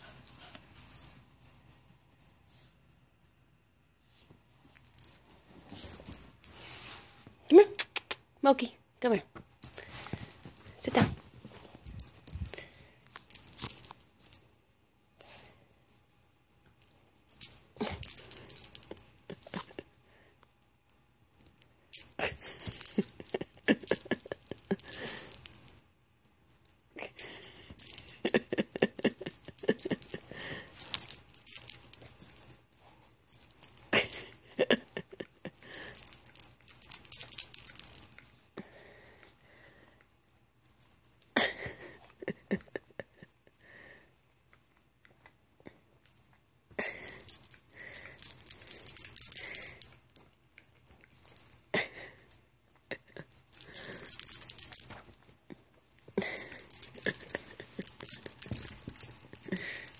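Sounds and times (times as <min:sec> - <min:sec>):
dog tags jingling: 0:16.8 - 0:19.9, 0:20.9 - 0:38.2, 0:46.8 - 0:51.8, 0:53.1 - 0:55.3, 0:56.0 - 0:59.9.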